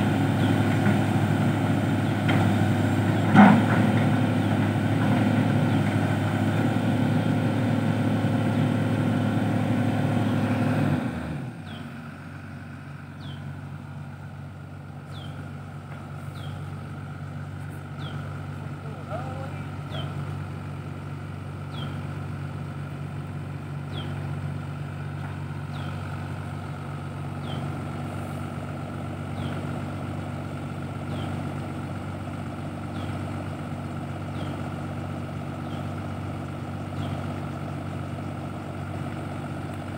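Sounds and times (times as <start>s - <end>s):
excavator diesel engine idling: 0.0s - 39.9s.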